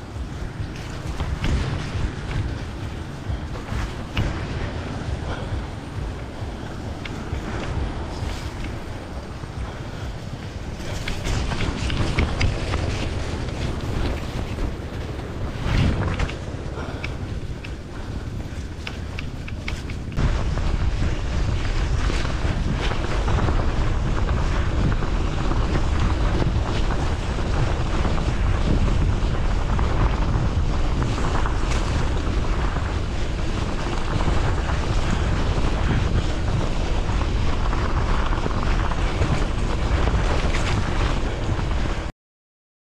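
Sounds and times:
bicycle tyres on rough wet road: 0.0 - 42.1
wind rumbling on microphone: 0.0 - 42.1.

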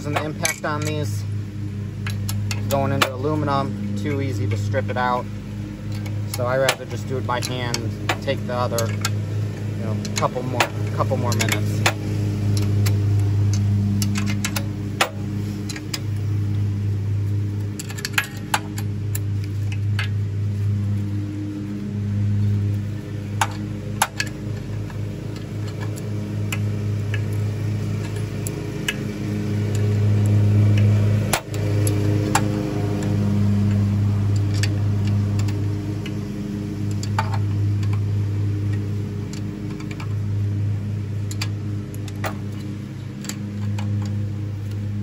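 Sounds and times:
wrench clicking on bolts: 0.0 - 1.2, 5.8 - 16.2, 23.3 - 40.2, 41.2 - 44.8
machine hum: 0.0 - 45.0.

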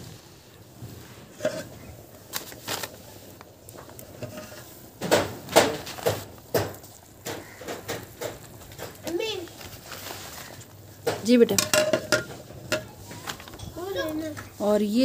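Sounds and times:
metal lid clinking and knocking: 11.1 - 13.0.

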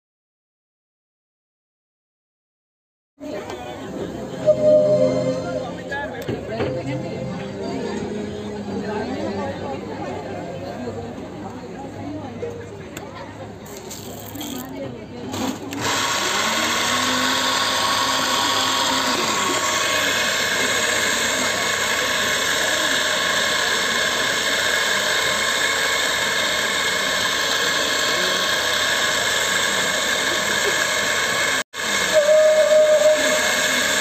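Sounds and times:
coffee grinder grinding beans: 13.7 - 14.8, 15.4 - 34.0.

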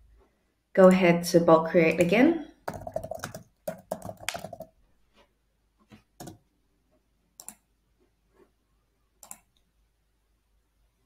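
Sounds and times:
computer keyboard keystrokes: 2.7 - 4.7, 6.2 - 6.4
mouse clicks: 7.4 - 7.6, 9.2 - 9.7.

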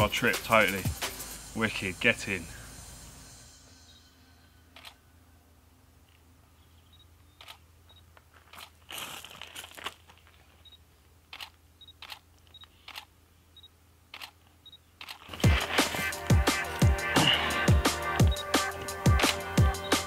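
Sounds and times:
electronic music with heavy bass: 0.0 - 3.2, 15.4 - 20.0
camera shutter clicks: 4.8 - 5.0, 7.4 - 7.6, 11.3 - 13.1, 14.1 - 14.4, 15.0 - 15.4, 19.2 - 19.5
rustle: 6.0 - 13.1
short high beeps: 18.2 - 18.6.

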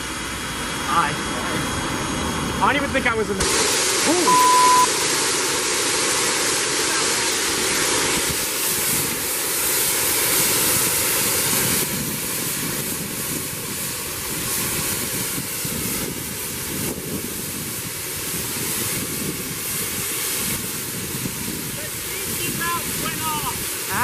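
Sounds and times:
steam hissing from safety valve: 3.2 - 24.0
wind on microphone: 7.7 - 24.0.

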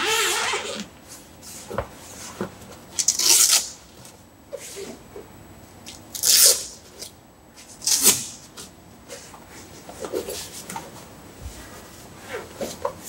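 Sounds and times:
awning fabric ripping: 0.0 - 0.9.

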